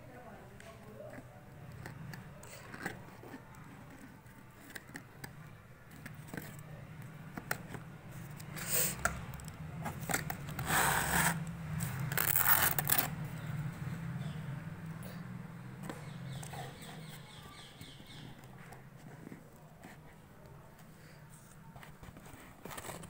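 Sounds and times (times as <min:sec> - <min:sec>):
box cutter scraping cardboard: 0:09.8 - 0:13.1, 0:21.9 - 0:23.0.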